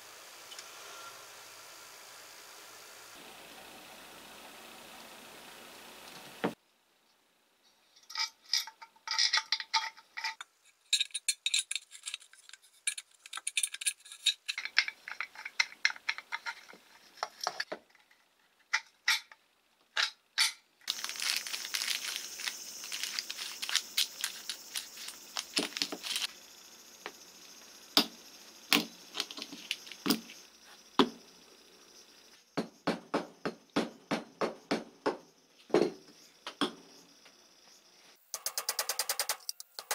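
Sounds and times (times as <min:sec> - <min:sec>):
metal parts clinking: 0:08.0 - 0:19.4, 0:20.0 - 0:26.3
plastic packaging crinkling: 0:20.9 - 0:26.3.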